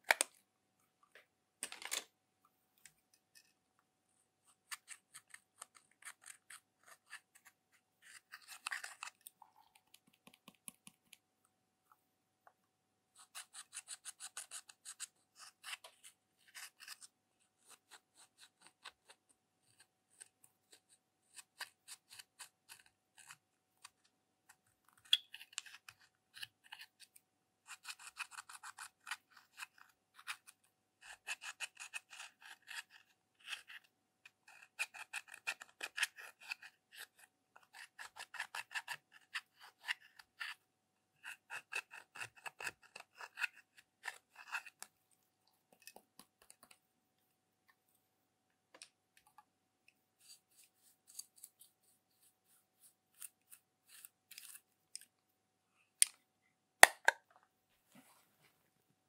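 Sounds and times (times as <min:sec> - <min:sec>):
metal tool scratching eyeshadow: 0:04.6 - 0:09.2, 0:13.2 - 0:20.3, 0:27.7 - 0:40.6, 0:41.2 - 0:44.9, 0:50.2 - 0:54.6.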